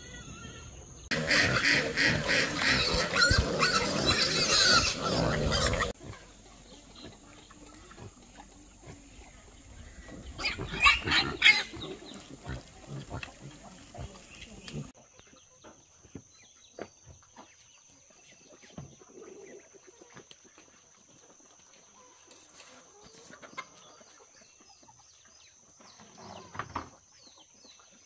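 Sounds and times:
pigs squealing: 0.0 - 14.9.

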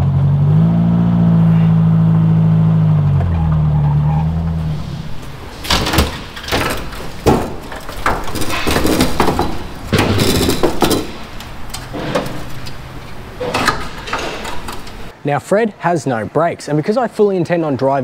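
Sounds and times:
tools and metal parts clanking: 4.6 - 15.1.

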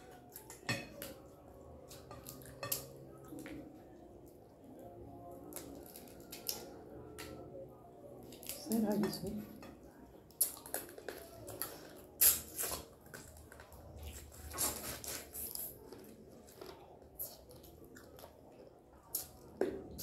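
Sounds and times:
chewing crab: 5.4 - 7.4, 10.2 - 20.0.

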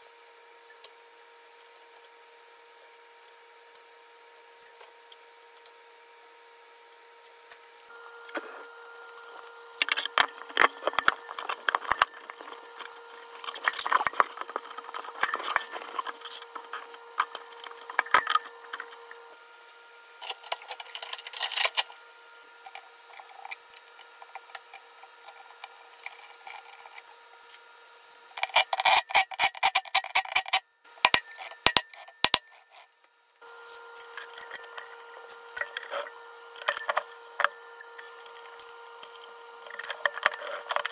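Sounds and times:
faint steady hum: 0.0 - 40.9
metal parts clinking and rubbing: 9.2 - 19.3, 20.2 - 21.9, 28.4 - 32.9, 33.6 - 40.9.

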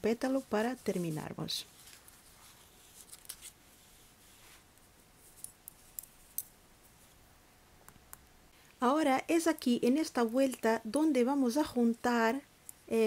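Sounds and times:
knitting needles clicking: 5.3 - 6.6.

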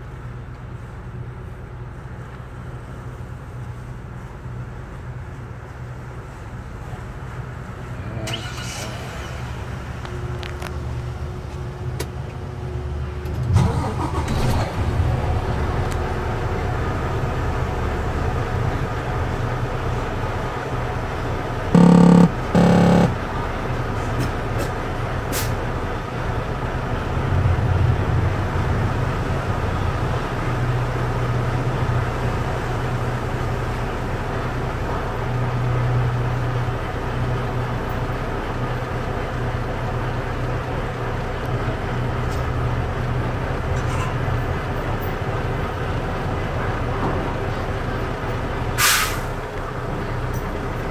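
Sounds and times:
truck engine idling: 0.1 - 50.9
truck horn blasts: 21.7 - 23.4.

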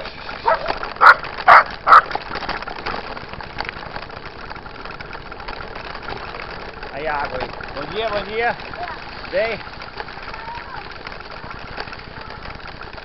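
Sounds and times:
bikes rolling on dirt road: 0.0 - 13.0
small dog barking: 0.4 - 2.1.

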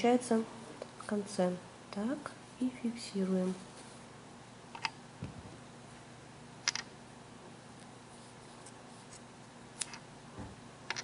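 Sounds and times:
soft low thump: 10.3 - 10.6.

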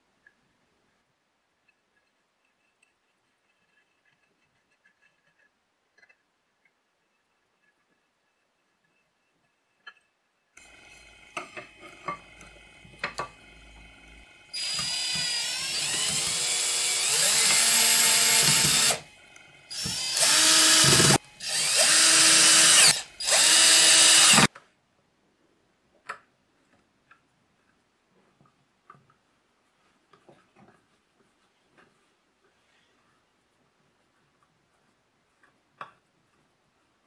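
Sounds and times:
cordless drill running: 13.4 - 24.5.

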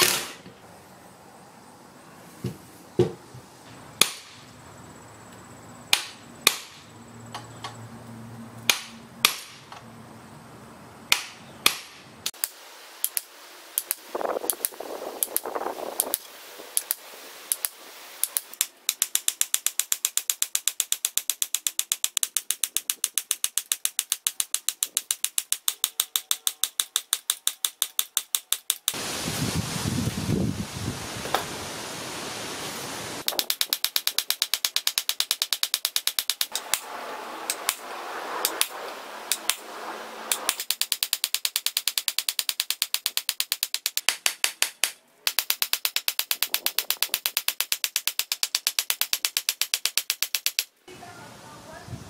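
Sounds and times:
metal-on-metal clicks and taps: 16.8 - 29.0, 33.2 - 36.6.

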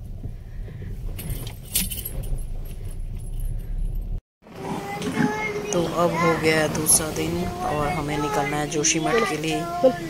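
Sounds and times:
engine and road rumble: 0.0 - 10.0
metallic jingling: 1.1 - 4.2.

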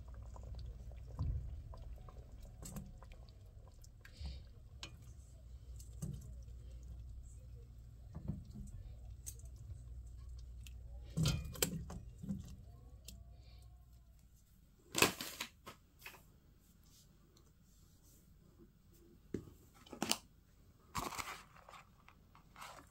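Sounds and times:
steady low hum: 0.0 - 14.8
metal tongs clinking on a pot: 11.1 - 12.0.

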